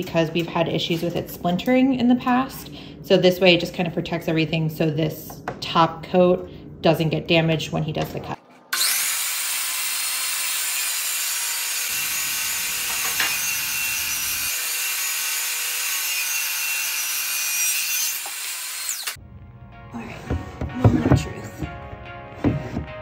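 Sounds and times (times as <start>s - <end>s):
miter saw cutting wood: 8.4s - 19.2s.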